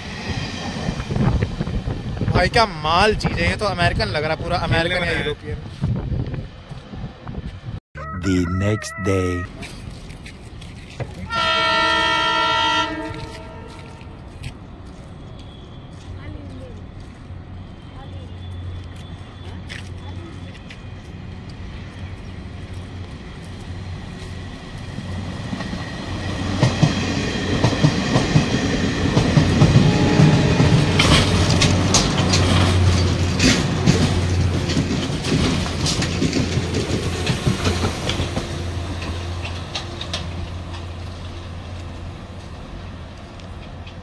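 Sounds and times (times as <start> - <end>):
rail train humming: 11.2 - 44.0
train wheel clicks over rail joints: 31.0 - 40.9.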